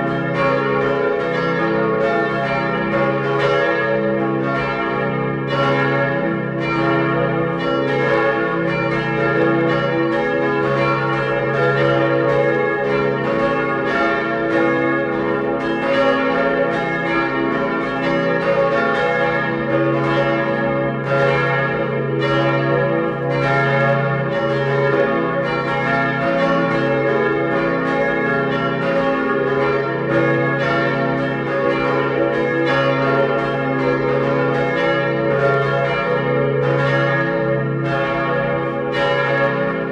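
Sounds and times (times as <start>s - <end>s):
synthesized church bells pealing: 0.0s - 39.9s.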